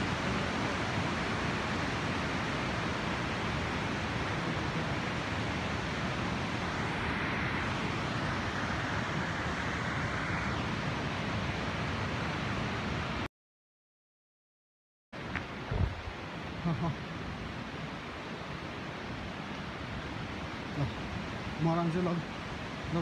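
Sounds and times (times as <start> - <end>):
river rushing: 0.0 - 13.3, 15.2 - 23.0.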